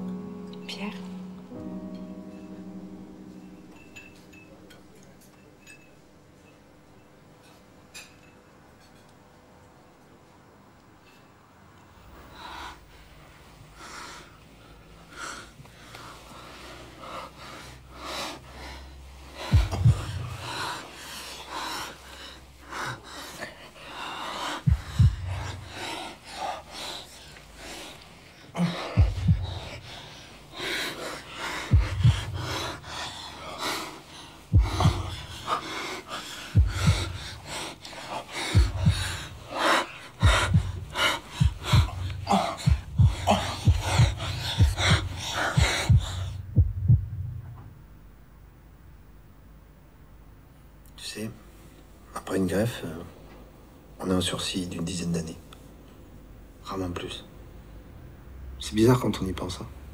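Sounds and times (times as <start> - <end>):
woman breathing heavily and gasping: 13.8 - 47.2
deep heartbeat thuds: 19.4 - 20.8, 24.6 - 25.9, 28.8 - 30.0, 31.6 - 33.1, 34.4 - 47.9.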